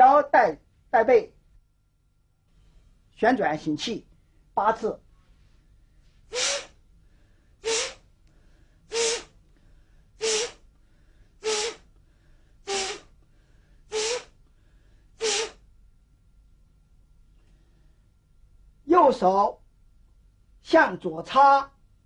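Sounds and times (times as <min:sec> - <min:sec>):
sharp forceful breaths: 0:06.2 - 0:15.6.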